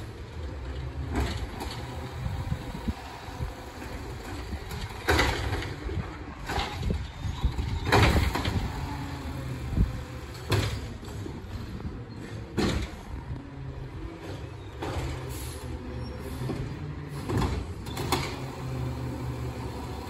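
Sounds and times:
recycling carts clattering: 0:00.0 - 0:20.0.

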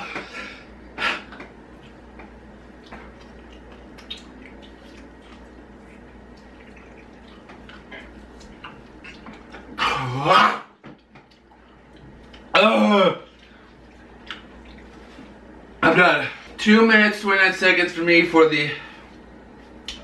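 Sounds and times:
low steady hum: 0:00.0 - 0:20.0
wet mouth clicks and smacks: 0:02.8 - 0:09.6
man groaning: 0:12.6 - 0:13.2.

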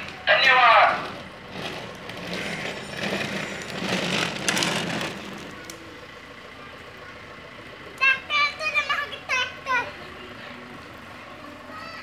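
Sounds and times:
plastic wheels rolling on paving: 0:00.0 - 0:06.2.

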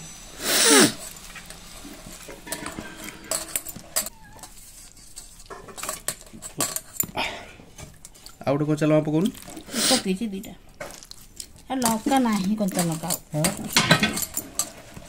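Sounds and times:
hand squishing vegetables: 0:07.4 - 0:13.7.

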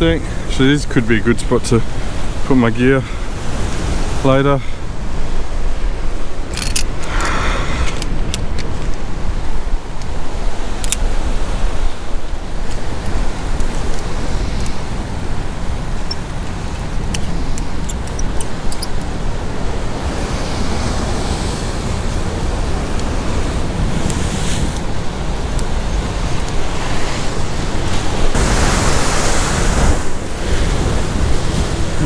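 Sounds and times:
ocean surf washing against rocks: 0:00.0 - 0:32.0
wind buffeting microphone: 0:00.0 - 0:32.0.

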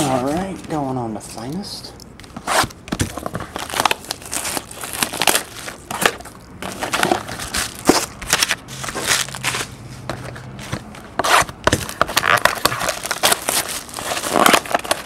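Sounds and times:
plastic shrink wrap crinkling: 0:02.6 - 0:09.8, 0:11.8 - 0:15.0.

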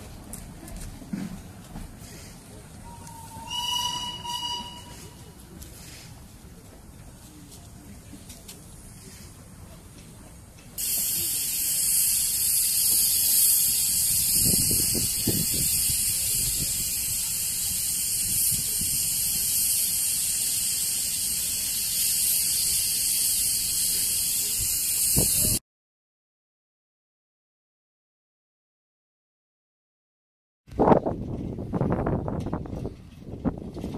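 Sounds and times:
steam locomotive hissing steam: 0:01.8 - 0:06.3, 0:10.8 - 0:25.6.

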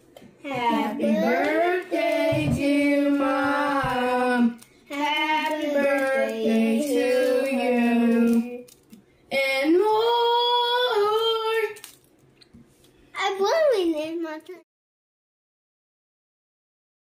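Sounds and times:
high voices singing: 0:00.4 - 0:08.7.

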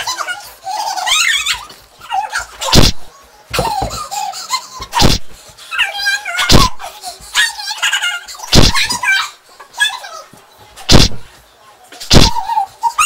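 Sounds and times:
high-pitched children's laughter: 0:00.0 - 0:02.9, 0:03.5 - 0:10.2
loud thumps from tussle: 0:02.7 - 0:04.0, 0:04.9 - 0:05.4, 0:08.5 - 0:09.0, 0:10.9 - 0:11.3, 0:12.1 - 0:12.4.

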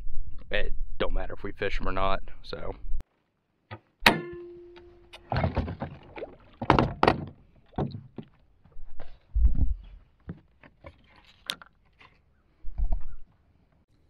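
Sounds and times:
sharp metallic clank: 0:04.0 - 0:05.3
knocks and thumps in metal boat: 0:04.0 - 0:08.3.

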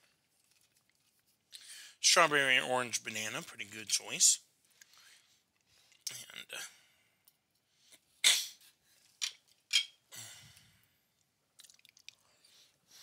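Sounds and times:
soft chewing: 0:00.0 - 0:01.6, 0:11.1 - 0:13.0
sharp mouth sounds: 0:08.2 - 0:08.6.

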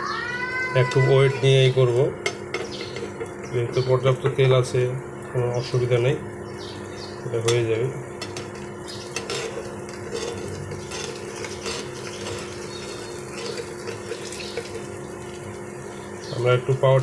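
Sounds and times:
food sizzling in frying pan: 0:01.0 - 0:17.0
spatula scraping and tapping pan: 0:02.2 - 0:03.4, 0:07.4 - 0:15.5.

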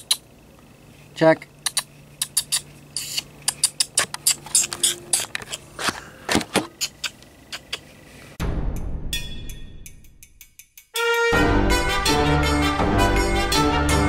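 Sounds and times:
faint steady hum: 0:00.0 - 0:08.4
sharp irregular clicks and taps: 0:01.6 - 0:04.7.

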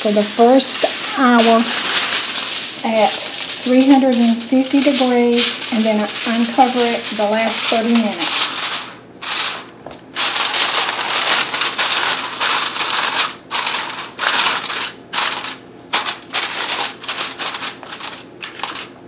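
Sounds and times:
aluminium foil crinkling: 0:00.0 - 0:19.0.

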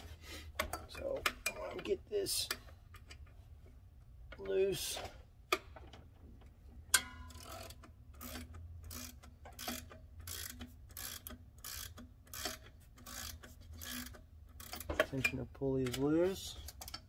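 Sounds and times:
ratchet wrench clicking: 0:06.9 - 0:15.4.

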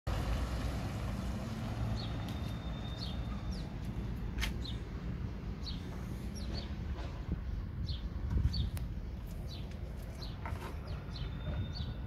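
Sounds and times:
small birds chirping: 0:01.1 - 0:12.0.

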